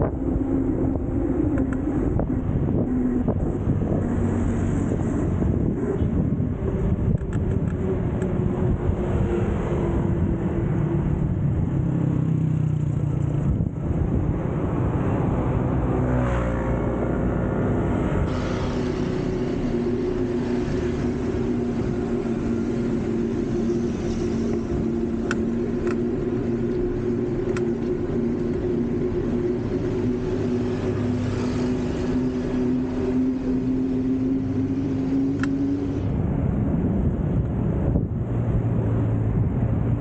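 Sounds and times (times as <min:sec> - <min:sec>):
road and traffic noise: 0:00.0 - 0:40.0
steady hum: 0:18.2 - 0:37.4.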